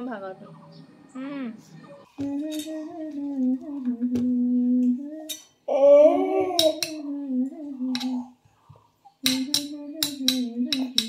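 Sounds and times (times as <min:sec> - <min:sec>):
person humming a slow tune: 0:02.1 - 0:08.4, 0:09.2 - 0:11.0
spoon clinking against bowl: 0:06.6 - 0:07.0, 0:09.2 - 0:11.0.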